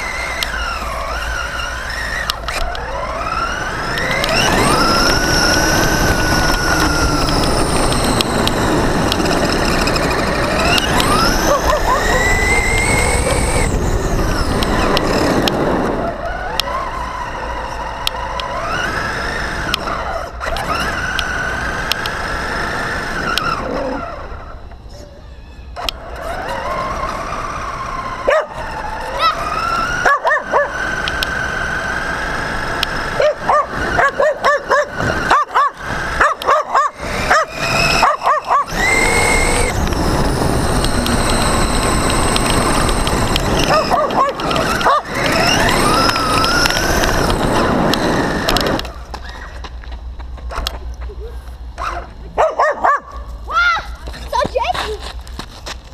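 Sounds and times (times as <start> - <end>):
electric motor whining: 0.0 - 52.4
dog barking: 11.5 - 12.3, 28.3 - 28.6, 30.0 - 30.8, 33.2 - 38.7, 43.7 - 45.0, 51.8 - 53.2.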